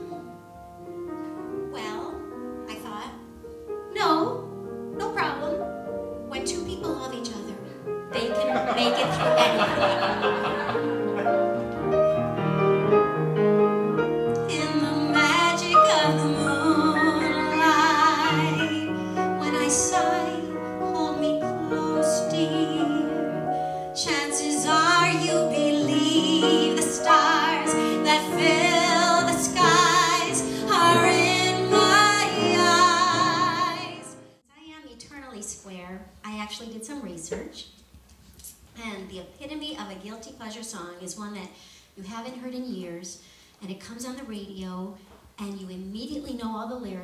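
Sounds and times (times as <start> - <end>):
piano accompaniment: 0.0 - 34.4
woman singing with vibrato: 14.4 - 23.4, 24.0 - 34.2.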